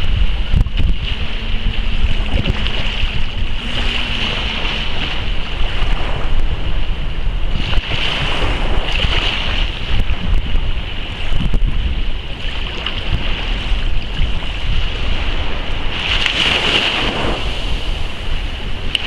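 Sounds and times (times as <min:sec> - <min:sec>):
waves splashing against rocks: 0:00.0 - 0:19.0
wind rumble on microphone: 0:00.0 - 0:19.0.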